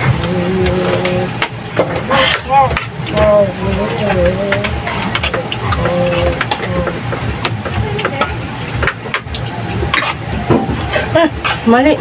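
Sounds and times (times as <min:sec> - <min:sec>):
person speaking: 0:00.0 - 0:01.4, 0:02.0 - 0:08.5
low engine rumble: 0:00.0 - 0:12.0.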